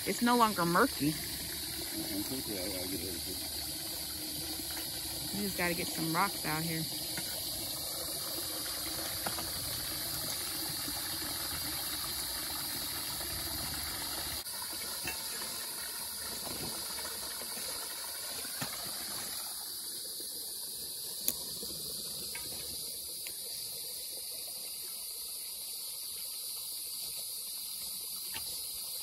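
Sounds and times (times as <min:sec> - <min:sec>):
high-pitched insect buzz: 0:00.0 - 0:09.5
water trickling and pouring: 0:00.0 - 0:29.0.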